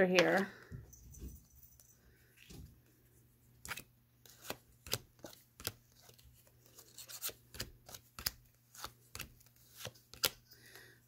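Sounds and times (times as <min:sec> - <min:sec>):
playing cards clicking and tapping: 0:03.6 - 0:10.8.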